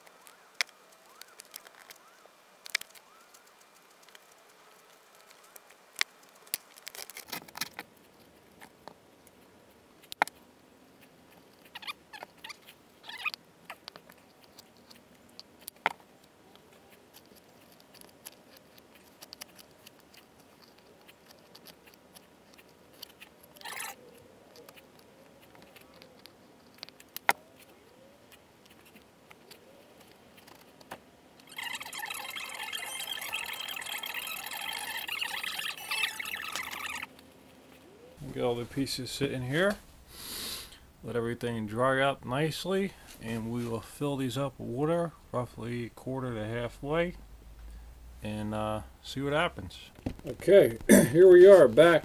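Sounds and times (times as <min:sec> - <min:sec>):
steady sound with held tones: 0:31.3 - 0:49.5.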